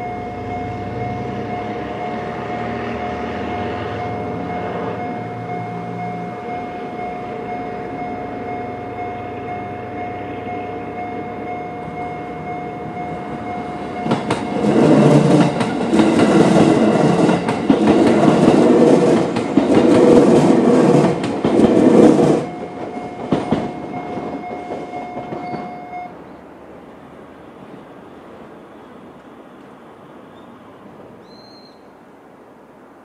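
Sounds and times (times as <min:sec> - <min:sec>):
level crossing bell ringing: 0:00.0 - 0:15.3, 0:22.4 - 0:26.1
train wheels clattering: 0:11.8 - 0:26.1.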